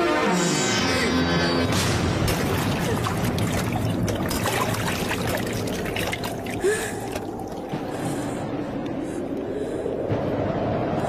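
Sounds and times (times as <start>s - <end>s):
water splashing onto metal plate: 2.2s - 7.6s.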